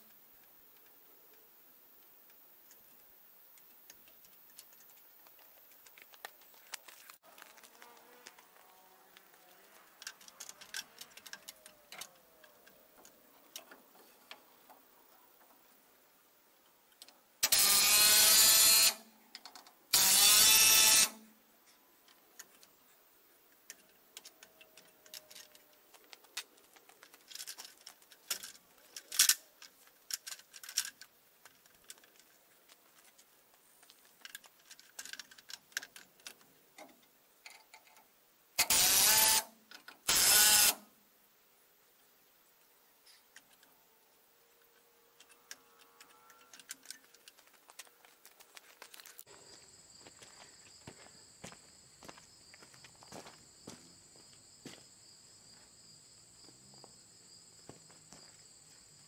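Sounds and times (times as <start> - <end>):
handling clicks and knocks: 2.6 - 15.7, 23.5 - 38.1, 44.6 - 49.3
cordless drill driving screws: 17.4 - 19.0, 19.9 - 21.2, 38.6 - 39.5, 40.1 - 40.8.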